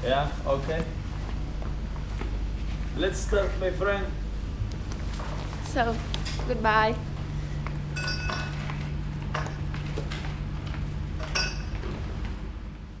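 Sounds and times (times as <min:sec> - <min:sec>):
low room hum: 0:00.0 - 0:13.0
light glass clinks: 0:08.0 - 0:08.6, 0:11.2 - 0:11.8.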